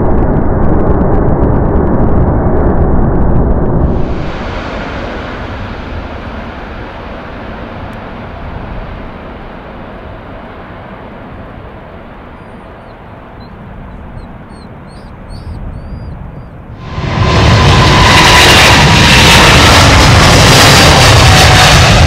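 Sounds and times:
jet engines rumbling: 0.0 - 22.0
small birds chirping: 12.3 - 16.7.

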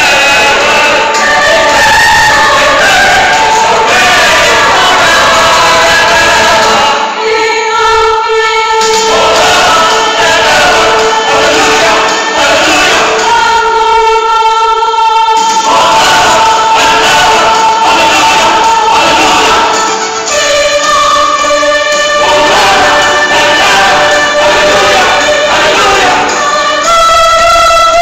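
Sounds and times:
mixed choir singing: 0.0 - 28.0.

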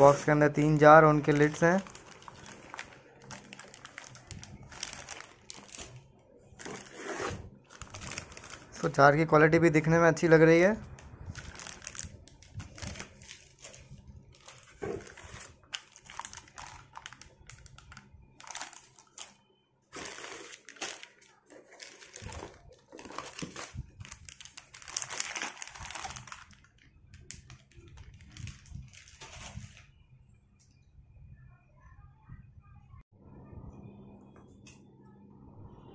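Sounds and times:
plastic wrapping crinkling: 0.0 - 9.0, 11.2 - 29.9
faint low hum: 10.8 - 35.9.

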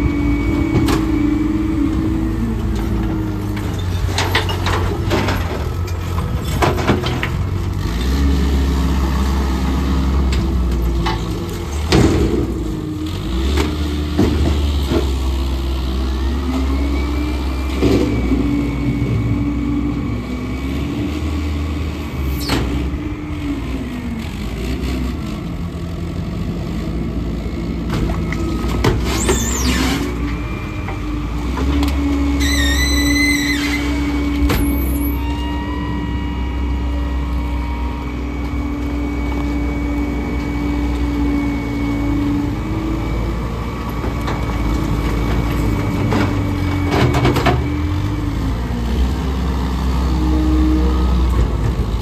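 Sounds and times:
heavy diesel engines running: 0.0 - 52.0
high squeal: 29.1 - 30.9, 32.3 - 42.3.

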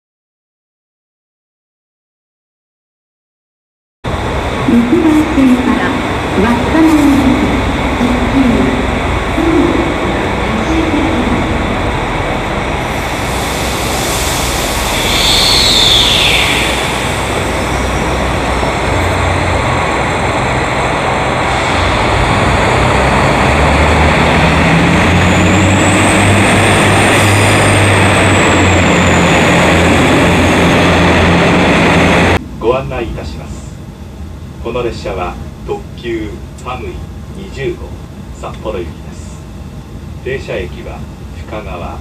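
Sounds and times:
train motor whine: 4.1 - 32.4
low hum: 4.1 - 34.6
train running noise: 4.1 - 42.0.

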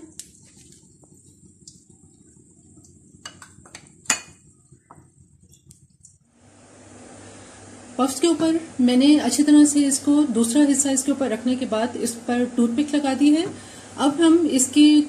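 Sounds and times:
spoon clinking on ceramic bowls: 3.2 - 4.4.

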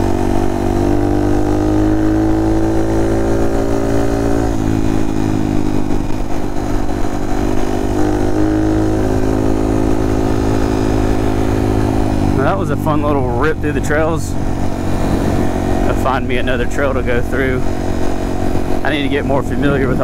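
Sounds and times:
motorcycle engine running: 0.0 - 20.0
tyres humming on pavement: 0.0 - 20.0.

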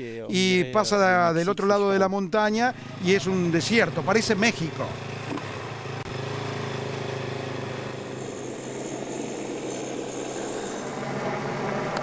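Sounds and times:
motorcycle engine idling: 2.7 - 11.8.

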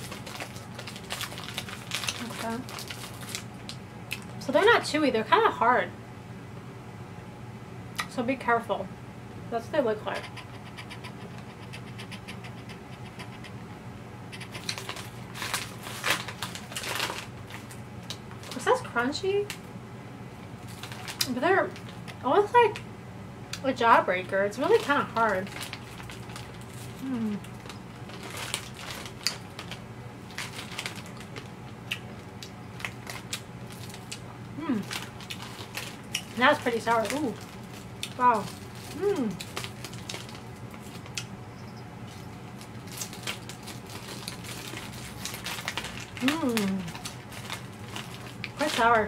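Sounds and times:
hard candy crunching in teeth: 0.0 - 4.3, 25.4 - 41.3, 42.1 - 49.0
faint steady hum: 0.0 - 49.0.

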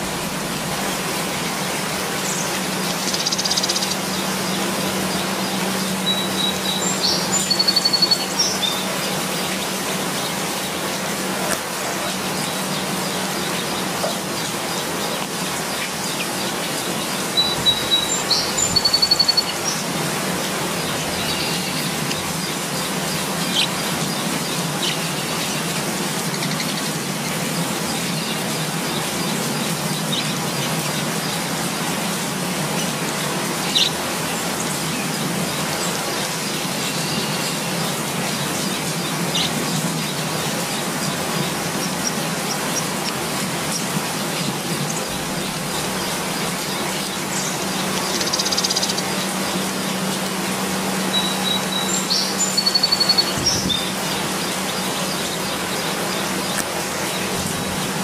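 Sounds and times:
bird trilling: 2.2 - 9.1, 17.2 - 19.9, 40.8 - 50.1, 50.8 - 57.9.

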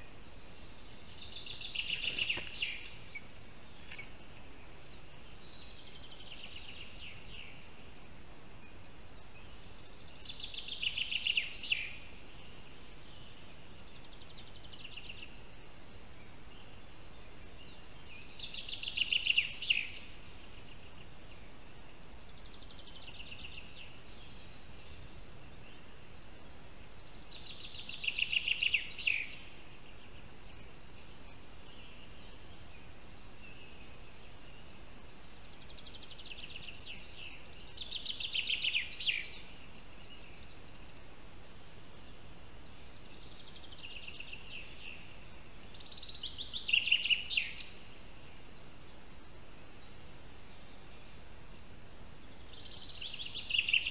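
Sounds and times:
background hiss: 0.0 - 53.9
songbird trilling: 0.9 - 4.2, 52.5 - 53.9.

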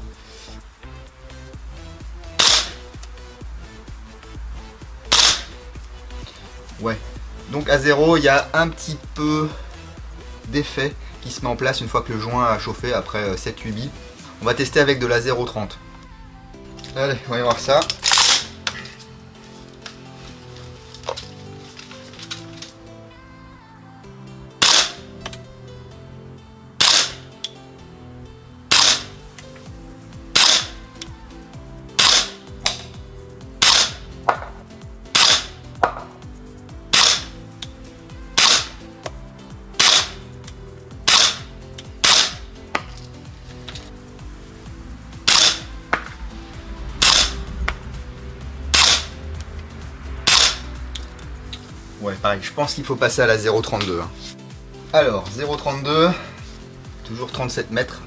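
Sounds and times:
airsoft rifle shots: 2.4 - 2.8, 5.1 - 5.5, 18.0 - 18.5, 24.6 - 25.1, 26.8 - 27.3, 28.7 - 29.2, 30.3 - 30.8, 32.0 - 32.8, 33.6 - 34.5, 35.1 - 36.0, 36.9 - 37.3, 38.4 - 38.8, 39.8 - 40.2, 41.1 - 42.4, 45.2 - 45.7, 47.0 - 47.4, 48.8 - 49.1, 50.3 - 50.6.

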